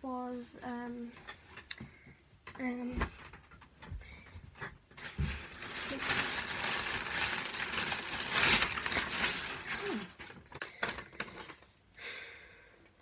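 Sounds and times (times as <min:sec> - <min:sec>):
paper rustling and crinkling: 0:04.9 - 0:11.7.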